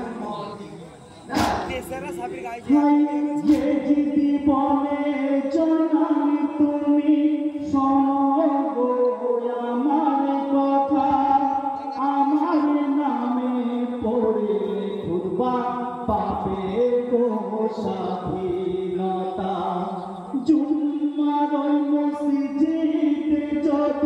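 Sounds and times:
men singing together: 0.0s - 24.0s
sharp knock: 1.3s - 1.9s, 3.4s - 3.9s.

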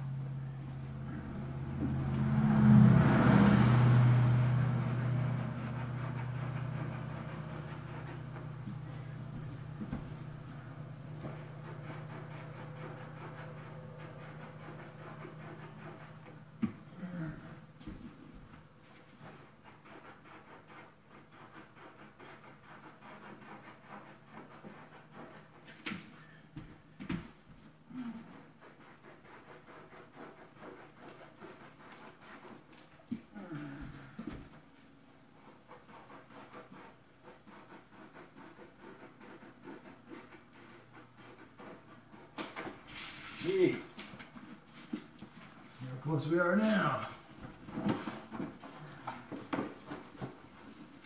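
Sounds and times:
steady low hum: 0.0s - 51.0s
hand scraping vinyl flooring: 3.1s - 51.0s
motor sound: 4.0s - 18.0s.

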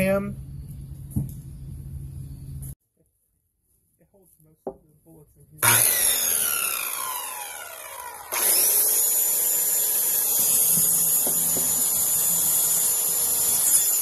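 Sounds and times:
circular saw cutting plastic: 5.6s - 14.0s.

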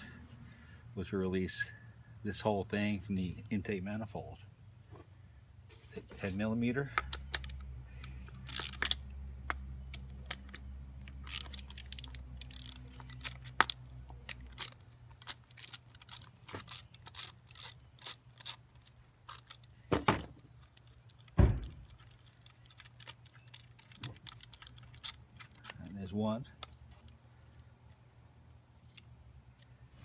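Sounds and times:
ratchet wrench clicking: 7.0s - 19.8s.

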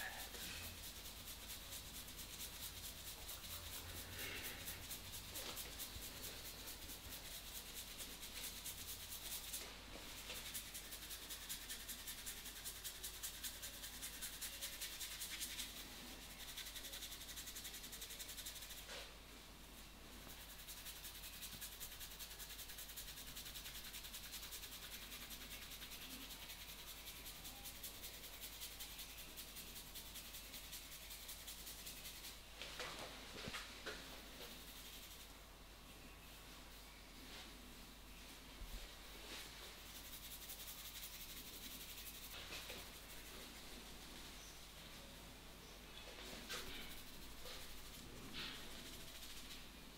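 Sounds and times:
hands rubbing hair: 0.0s - 19.0s, 20.2s - 35.3s, 37.2s - 45.0s, 46.0s - 49.9s.

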